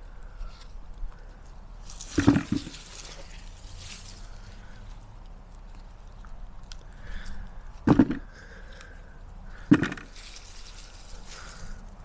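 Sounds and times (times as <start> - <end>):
rustling of earth and haulm: 0.0 - 12.0
dull thuds: 2.1 - 2.9, 7.8 - 8.3, 9.6 - 10.2.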